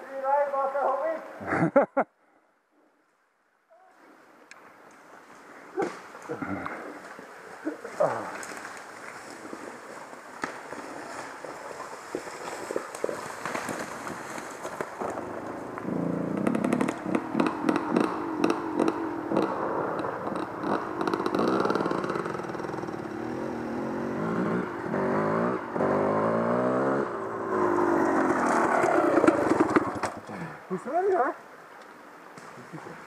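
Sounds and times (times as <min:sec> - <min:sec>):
motorcycle engine revving: 0:13.5 - 0:30.2.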